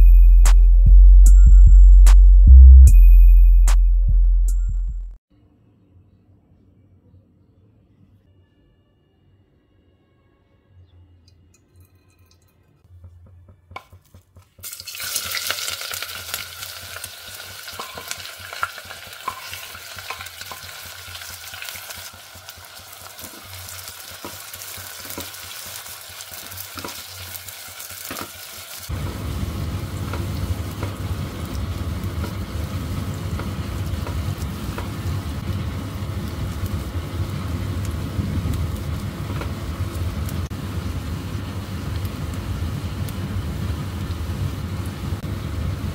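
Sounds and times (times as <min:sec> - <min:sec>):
onions sizzling in hot oil: 0:14.6 - 0:45.9.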